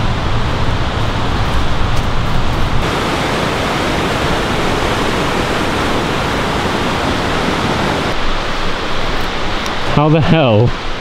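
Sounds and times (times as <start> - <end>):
river rushing over rapids: 2.8 - 11.0.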